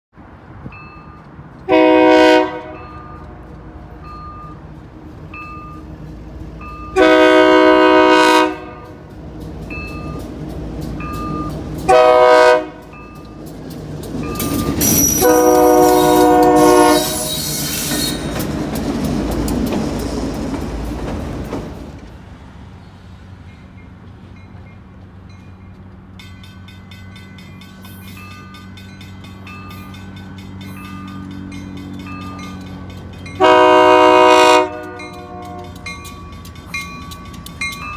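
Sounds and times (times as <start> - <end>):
locomotive engine and wheels rumbling: 0.1 - 37.9
crossing signal bell ringing: 0.7 - 1.4, 2.7 - 17.6, 23.5 - 37.9
locomotive air horn blasts: 1.7 - 3.9, 7.0 - 9.0, 11.9 - 12.9, 14.9 - 17.7, 33.4 - 36.0
wheels clicking over rail joints: 8.5 - 22.4, 23.4 - 37.9.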